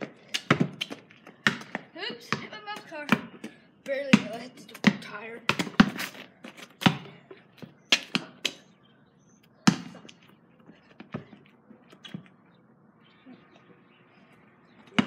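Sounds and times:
basketball bouncing on pavement: 0.0s - 8.7s, 9.6s - 10.3s, 11.0s - 12.3s, 14.8s - 15.0s.

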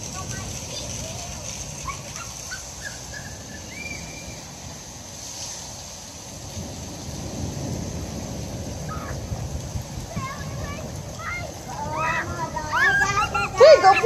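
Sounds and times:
rain hissing on pavement: 0.0s - 14.0s
wind rumbling on microphone: 0.0s - 14.0s.

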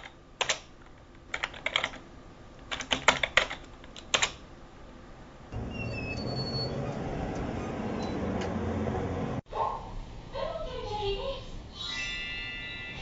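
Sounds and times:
laptop keyboard typing: 0.0s - 2.0s, 2.7s - 4.4s
steady background noise: 0.0s - 11.8s.

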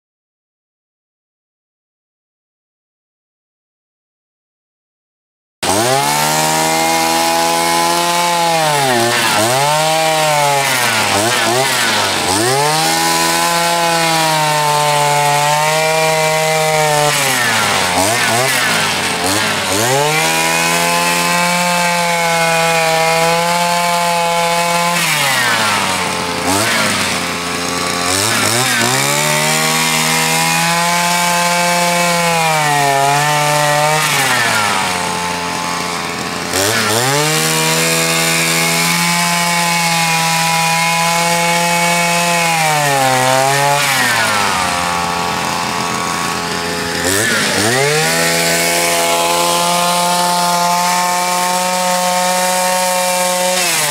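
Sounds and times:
two-stroke engine revving: 5.6s - 53.9s
rotary brush sweeping snow: 43.7s - 53.9s.

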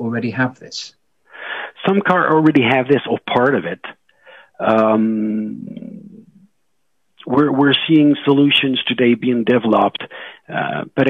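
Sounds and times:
man saying uhh: 0.5s - 0.9s, 4.6s - 6.4s, 7.2s - 11.0s.

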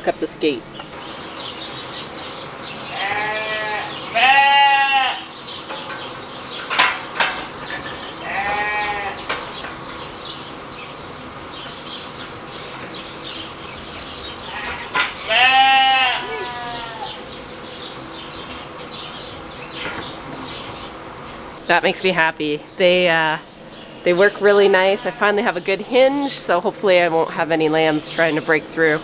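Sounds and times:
sheep bleating: 2.9s - 5.3s, 8.2s - 9.2s, 14.4s - 17.2s.

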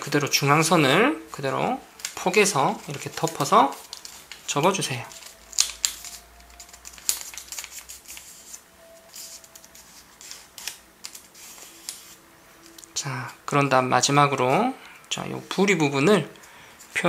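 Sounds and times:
paper rustling and crinkling: 1.3s - 13.3s
paper crackles: 1.3s - 13.4s.

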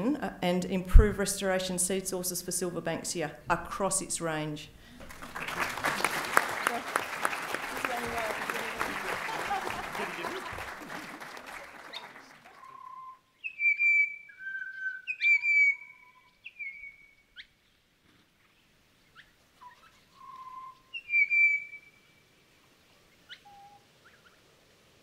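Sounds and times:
songbird singing: 11.8s - 17.8s, 18.4s - 24.4s.

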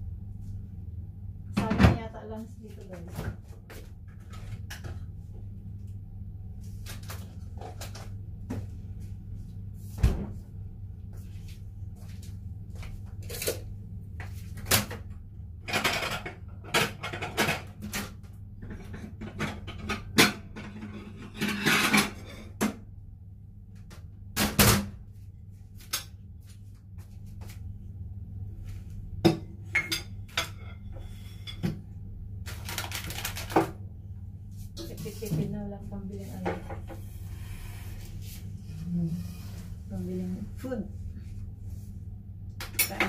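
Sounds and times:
steady low hum: 0.0s - 43.0s.

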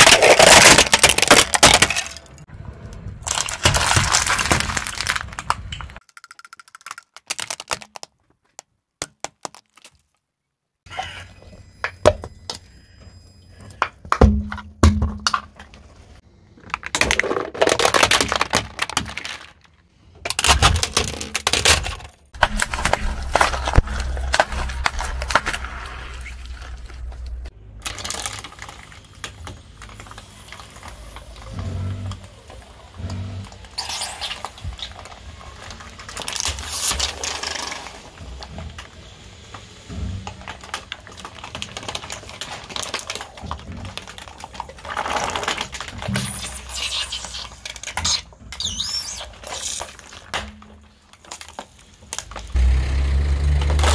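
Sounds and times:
plastic cracking under car tyre: 0.0s - 2.4s, 3.2s - 10.2s, 16.5s - 52.6s
low steady hum: 21.9s - 29.7s.

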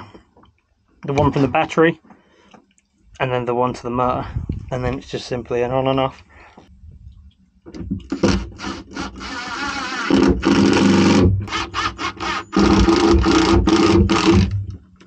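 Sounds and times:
cordless drill motor whine: 8.1s - 14.6s.

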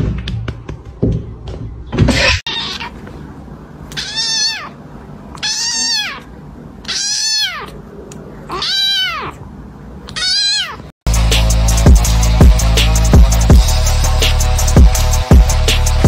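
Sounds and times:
kitten meowing: 2.5s - 3.0s, 3.9s - 7.8s, 8.5s - 9.4s, 10.1s - 10.9s.

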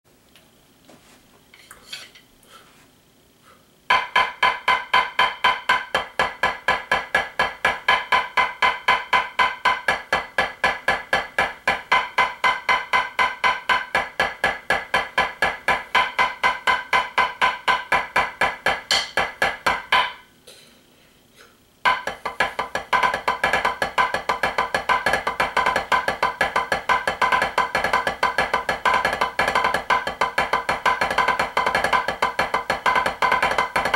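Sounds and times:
drumsticks on practice pad: 3.9s - 20.7s, 21.8s - 33.9s.

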